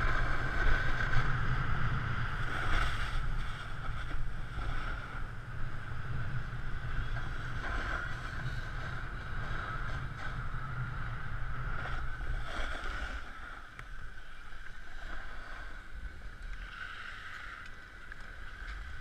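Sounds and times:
wind buffeting microphone: 0.0 - 14.7
snowboard sliding over packed snow: 0.0 - 19.0.

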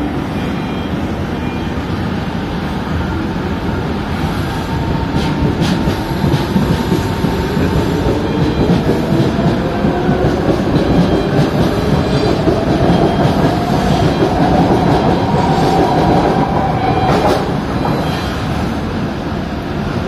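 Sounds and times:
train wheels clattering on track: 4.7 - 18.8.

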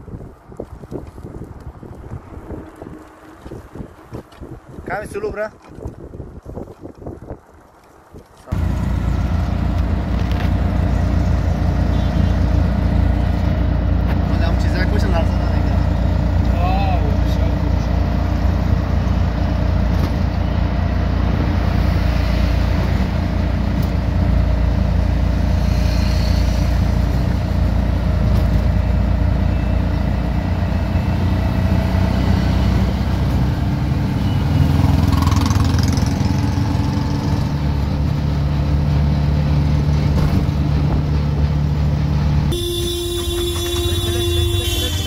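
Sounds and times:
city traffic: 0.0 - 45.0
road and engine noise: 0.0 - 45.0
wind rumble: 0.0 - 45.0.

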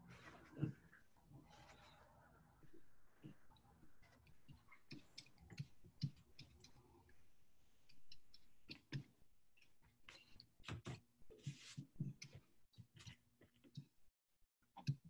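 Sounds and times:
soft rubbing on paper: 10.8 - 12.4
small clicks and taps: 14.6 - 15.0.

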